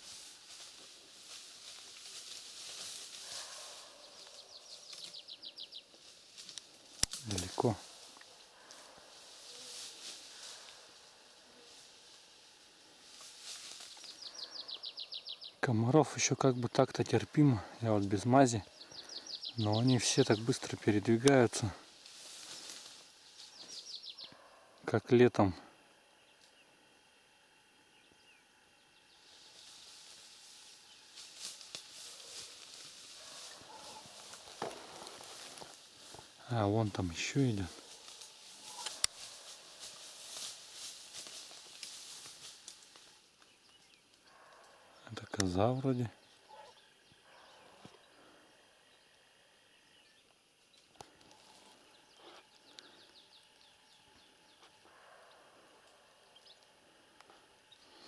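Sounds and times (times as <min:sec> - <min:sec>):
soft rustling hiss: 0:00.0 - 0:15.6, 0:16.2 - 0:24.3, 0:25.6 - 0:58.0
faint bird chirps: 0:03.2 - 0:06.2, 0:13.7 - 0:16.0, 0:17.8 - 0:20.6, 0:22.3 - 0:24.8, 0:36.0 - 0:39.8, 0:43.4 - 0:58.0.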